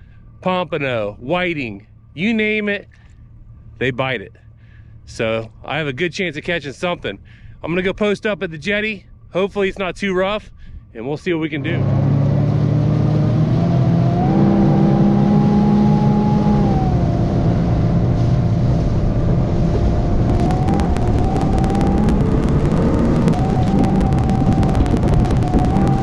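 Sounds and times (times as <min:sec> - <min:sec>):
outboard motor running: 0:01.9 - 0:05.9, 0:11.5 - 0:26.0
hull crackling over chop: 0:12.6 - 0:26.0.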